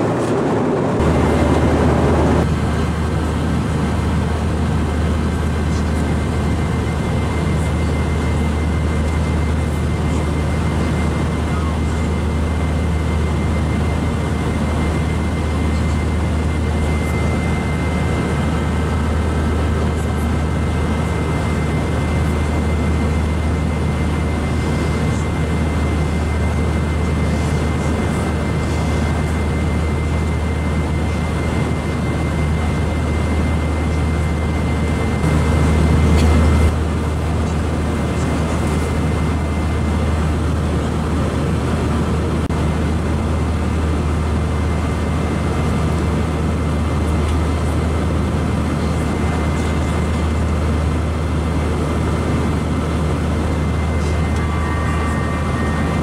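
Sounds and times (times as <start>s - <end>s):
airplane cabin rumble: 0.0s - 56.0s
faint high whine: 5.4s - 36.8s, 48.8s - 56.0s.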